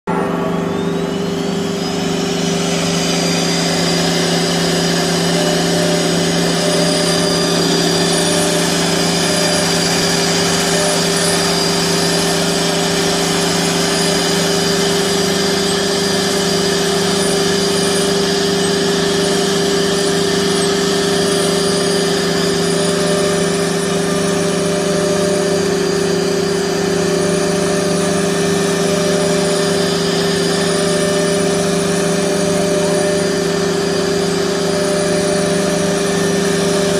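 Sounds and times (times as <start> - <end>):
dust collector suction: 0.1 - 16.5
cnc router spindle hum: 0.1 - 36.9.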